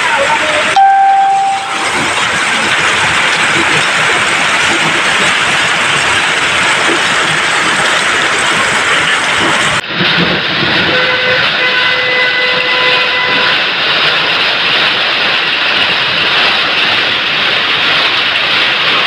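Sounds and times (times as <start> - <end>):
hail clattering: 0.0 - 19.0
heavy rain: 0.0 - 19.0.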